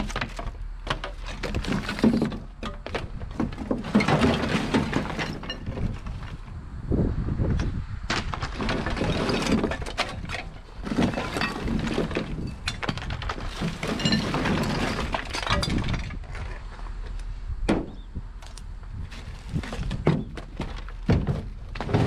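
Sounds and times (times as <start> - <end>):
scrap metal clattering: 0.0 - 6.4, 8.1 - 16.8.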